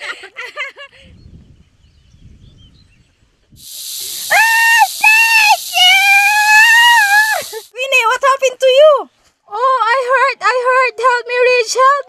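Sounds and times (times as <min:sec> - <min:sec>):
loud steady hiss: 0:03.6 - 0:07.8
woman screaming: 0:04.2 - 0:07.7.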